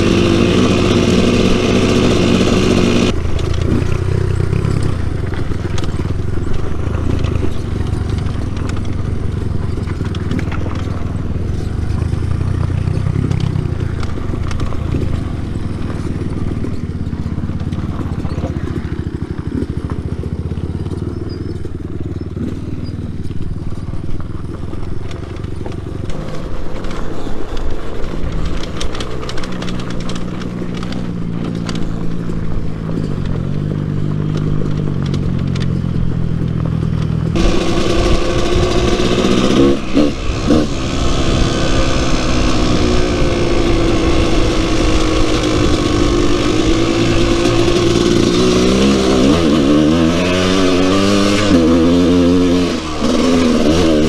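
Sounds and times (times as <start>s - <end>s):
dirt bike engine revving: 0.0s - 54.0s
small clicks and knocks: 24.2s - 37.2s.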